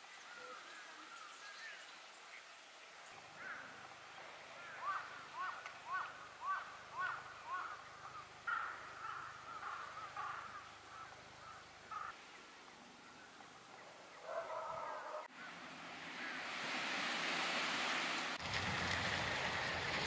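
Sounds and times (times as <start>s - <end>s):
birds calling: 3.0s - 16.8s.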